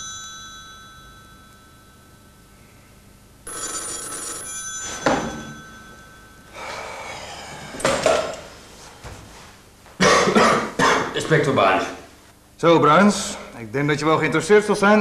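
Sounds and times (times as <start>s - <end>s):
telephone bell ringing: 0.0s - 2.1s, 3.4s - 7.1s.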